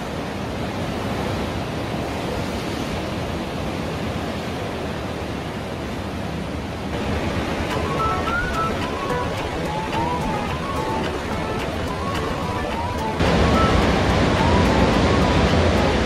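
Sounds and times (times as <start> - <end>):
sea waves rushing: 0.0 - 16.0
wind: 0.0 - 16.0
musical notes: 7.3 - 16.0.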